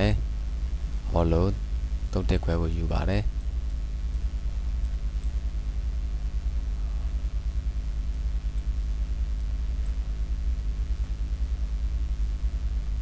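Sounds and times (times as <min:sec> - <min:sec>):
low electrical hum: 0:00.0 - 0:13.0
faint clicks: 0:03.3 - 0:05.5.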